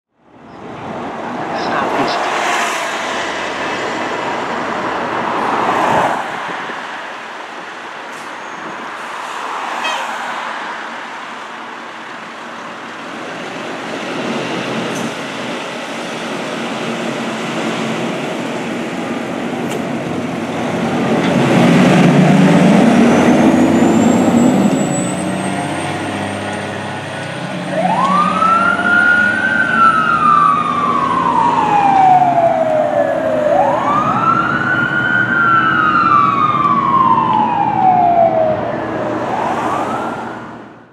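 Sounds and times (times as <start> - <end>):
fire engine diesel engine: 0.2 - 40.9
siren rising and falling: 21.5 - 40.7.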